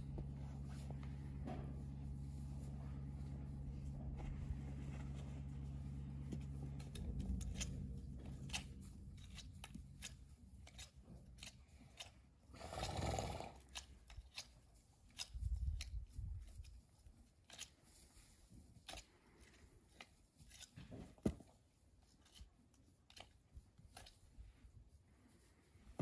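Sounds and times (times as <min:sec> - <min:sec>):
hoof picking clicks and scrapes: 0:00.0 - 0:26.0.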